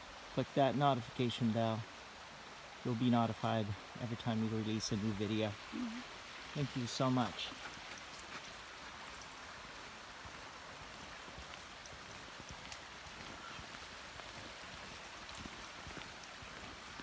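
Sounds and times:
hiss of water: 0:00.0 - 0:17.0
faint ticks: 0:10.8 - 0:17.0.

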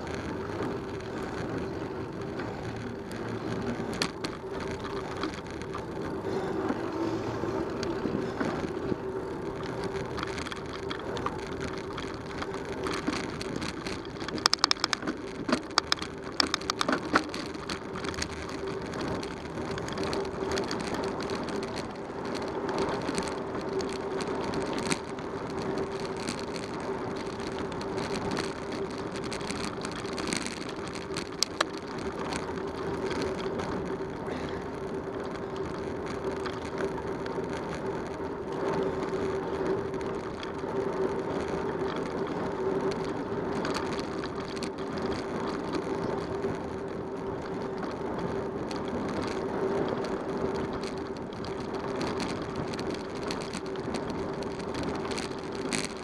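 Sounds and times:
bicycle tyre and wind noise: 0:00.0 - 0:56.0
sharp rattling clicks: 0:00.1 - 0:07.1, 0:07.7 - 0:34.1.

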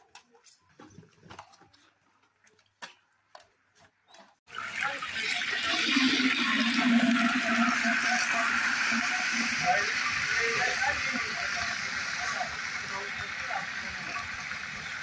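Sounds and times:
cooking pot hissing over fire: 0:04.5 - 0:15.0.

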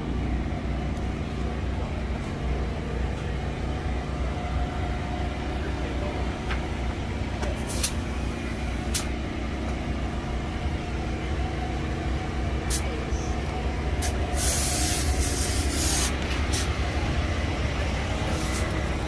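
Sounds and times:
engine idling: 0:00.0 - 0:19.0
short sharp hisses: 0:14.0 - 0:16.7.

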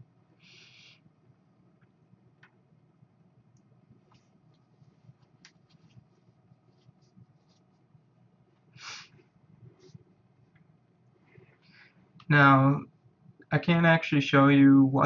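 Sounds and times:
short hiss-like burst: 0:08.8 - 0:09.1.

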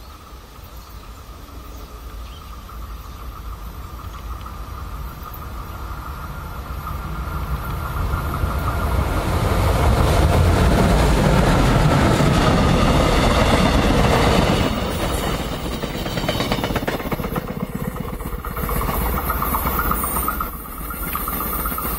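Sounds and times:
passenger train running noise: 0:00.0 - 0:21.9
train wheel clicks: 0:13.0 - 0:21.9.

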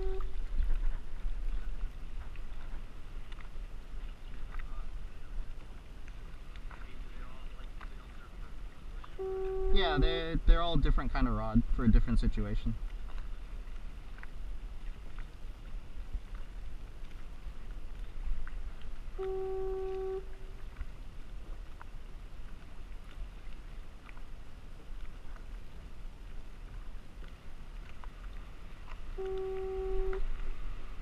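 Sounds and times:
foghorn note: 0:00.0 - 0:00.4, 0:09.2 - 0:10.0, 0:19.2 - 0:20.5, 0:29.2 - 0:30.2.

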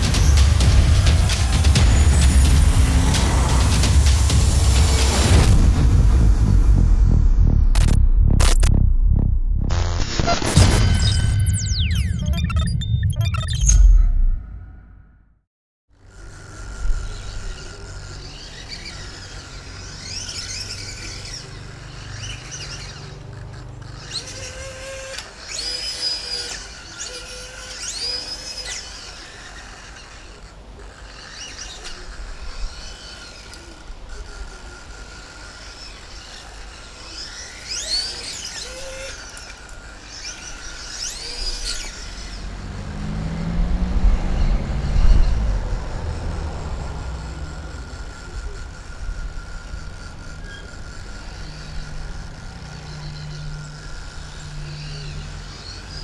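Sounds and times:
electric motors whirring: 0:00.0 - 0:06.8, 0:07.5 - 0:08.8, 0:15.9 - 0:56.0
low hum: 0:00.0 - 0:15.4, 0:40.3 - 0:56.0
birds chirping: 0:16.8 - 0:34.2, 0:35.2 - 0:56.0.

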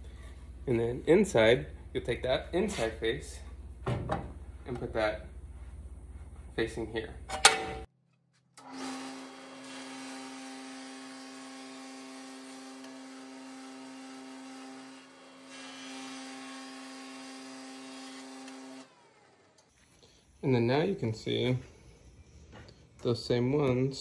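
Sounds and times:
jointer motor whine and hiss: 0:08.6 - 0:19.7.

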